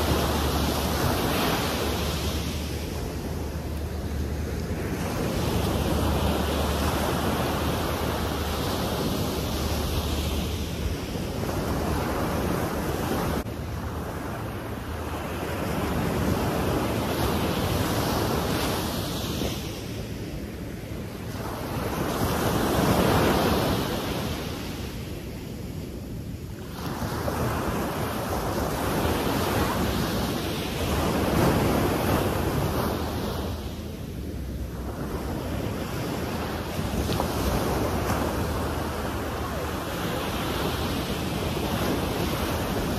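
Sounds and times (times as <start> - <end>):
ocean surf breaking on beach: 0.0 - 42.9.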